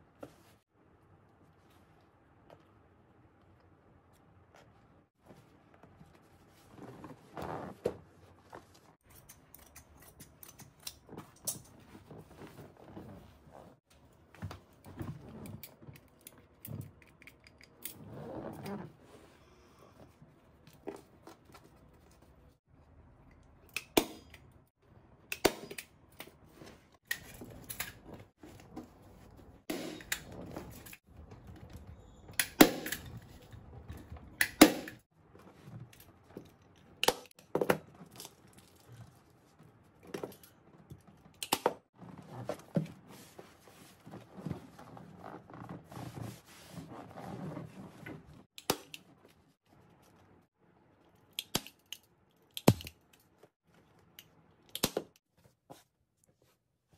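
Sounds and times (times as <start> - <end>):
fabric rustling: 4.5 - 9.0.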